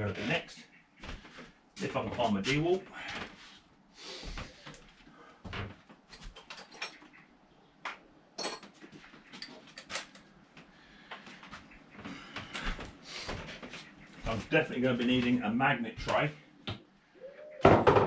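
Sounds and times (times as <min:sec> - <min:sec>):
tools clinking and rattling: 0:06.1 - 0:07.2, 0:08.4 - 0:10.2.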